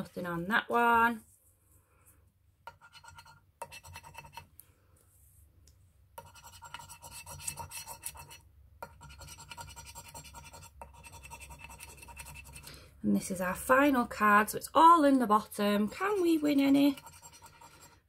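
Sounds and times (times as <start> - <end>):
coin scraping scratch card: 2.7 - 4.4, 6.2 - 8.4, 9.0 - 12.7, 16.9 - 18.0.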